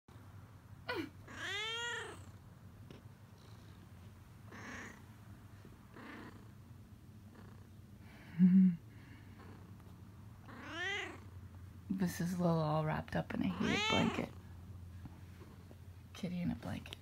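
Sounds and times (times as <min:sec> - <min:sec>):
cat meowing: 0:01.3 - 0:02.2, 0:10.5 - 0:11.3, 0:13.5 - 0:14.3.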